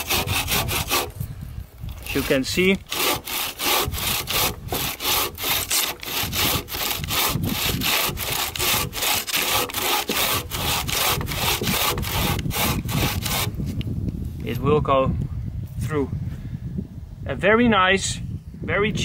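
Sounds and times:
saw rasping through log: 0.0s - 1.2s, 2.0s - 13.6s.

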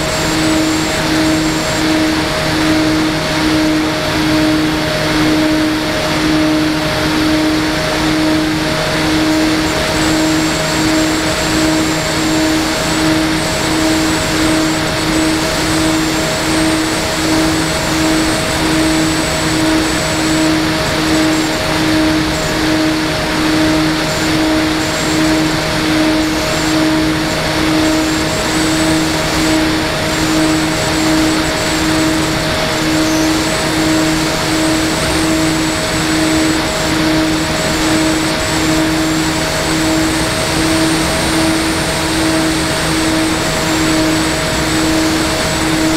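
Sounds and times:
faint high whine: 0.0s - 45.9s
model aircraft motor humming: 0.0s - 45.9s.

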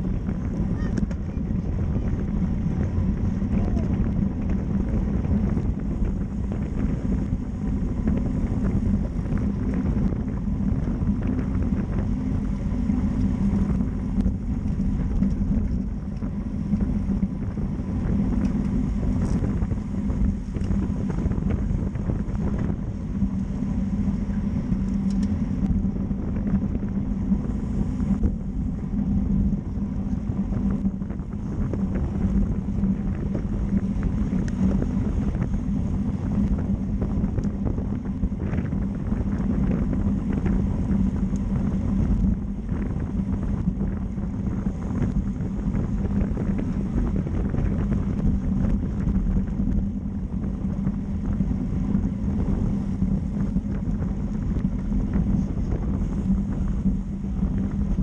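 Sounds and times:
low rumble of road noise: 0.0s - 58.0s
wind rushing on microphone: 0.0s - 58.0s.

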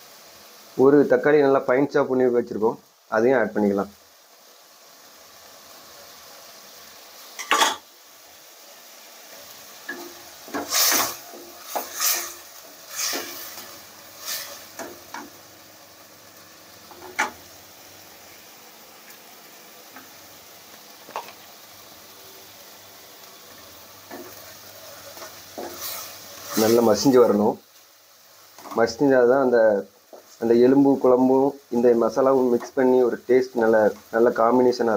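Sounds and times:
tomatoes sizzling in a pan: 0.0s - 34.9s
spatula scraping and knocking pan: 9.8s - 15.4s, 16.9s - 17.4s, 25.1s - 26.9s.

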